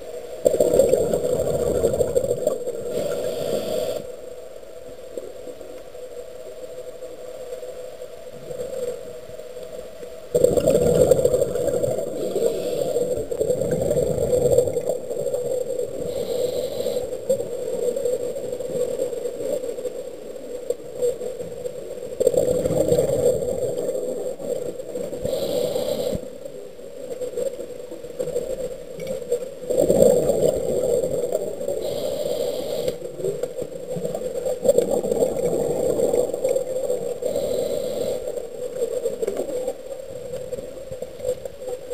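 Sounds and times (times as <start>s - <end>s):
muffled underwater hum: 0.1s - 28.4s.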